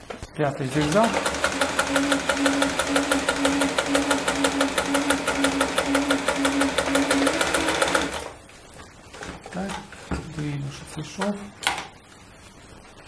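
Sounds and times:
sewing machine running: 0:00.7 - 0:08.4.

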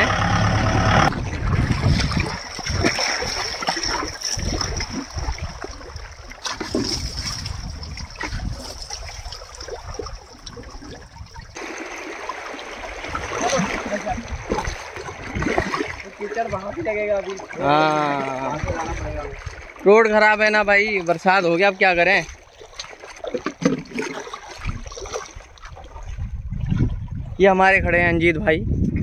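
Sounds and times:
river water splashing and trickling: 0:00.0 - 0:27.4.

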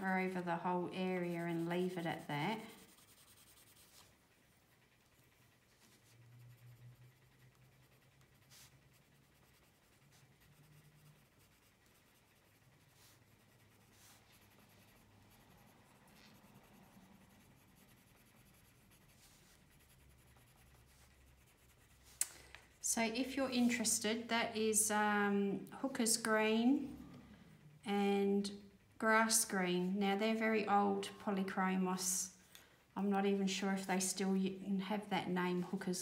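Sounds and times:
pencil scratching on paper: 0:00.0 - 0:24.6.

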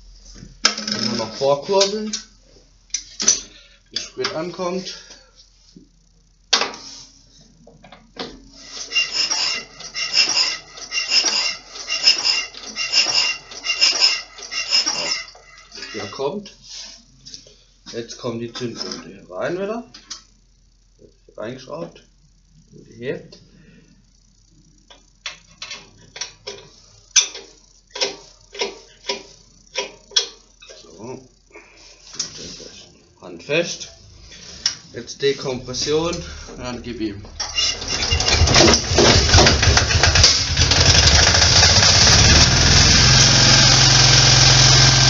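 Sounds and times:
engine cranking metallic clatter: 0:08.8 - 0:16.1, 0:37.4 - 0:45.0.

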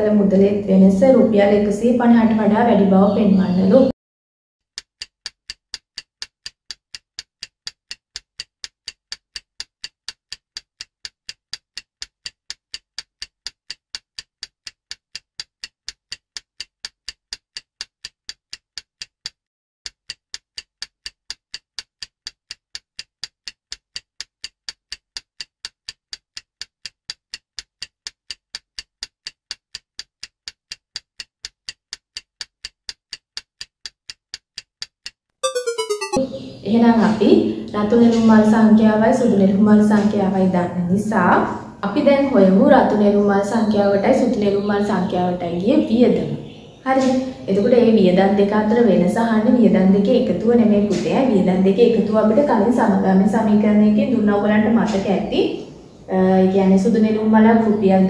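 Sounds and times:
stopwatch ticking: 0:04.7 - 0:35.2.

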